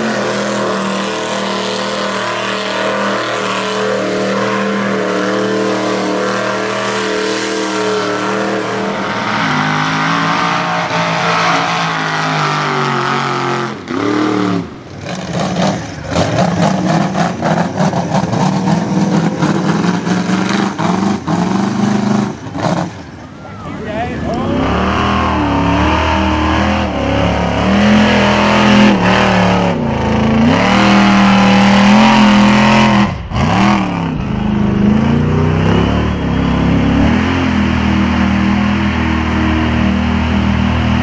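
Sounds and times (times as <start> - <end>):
truck engines revving high: 0.0 - 41.0.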